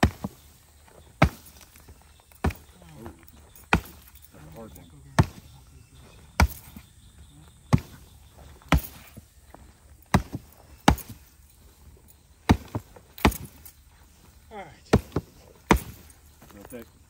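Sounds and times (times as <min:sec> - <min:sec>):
sharp chopping strikes: 0:01.2 - 0:01.8, 0:03.7 - 0:04.2, 0:05.2 - 0:05.5, 0:06.4 - 0:06.8, 0:07.7 - 0:08.0, 0:08.6 - 0:09.2, 0:10.0 - 0:11.3, 0:12.4 - 0:13.7, 0:14.9 - 0:16.1.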